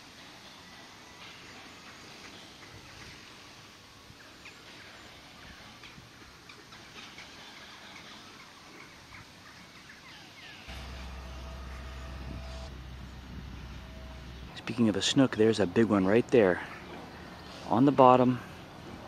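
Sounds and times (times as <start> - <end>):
low steady rumble: 10.7 - 16.3.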